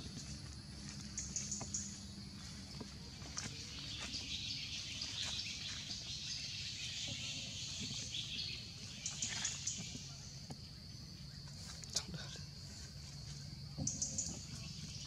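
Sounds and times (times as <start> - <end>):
bird chirps: 3.4 - 11.6, 13.8 - 15.0.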